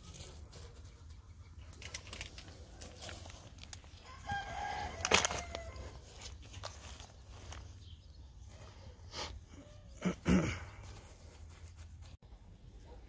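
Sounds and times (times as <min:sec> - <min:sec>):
hands working dry soil: 0:00.0 - 0:12.7
rooster crowing: 0:04.0 - 0:06.0.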